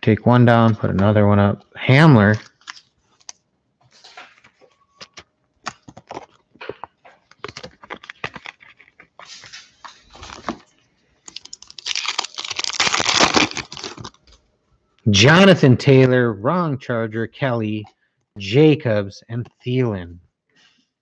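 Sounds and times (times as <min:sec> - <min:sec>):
foil wrapper crinkling: 0:02.4 - 0:14.4
foil wrapper ripping: 0:07.3 - 0:10.6, 0:11.2 - 0:14.3.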